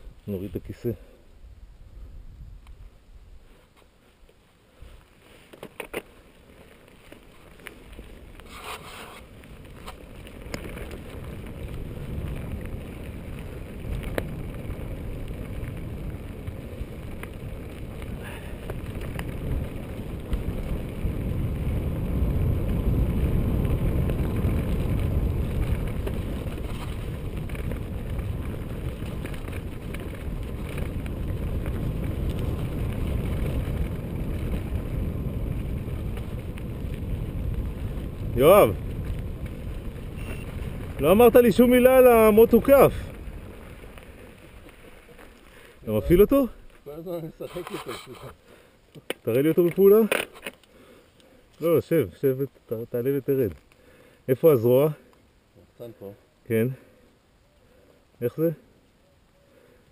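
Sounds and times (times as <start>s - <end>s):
bike tyres rumbling on dirt: 0.0s - 58.9s
wind buffeting microphone: 1.4s - 3.5s, 7.5s - 47.2s.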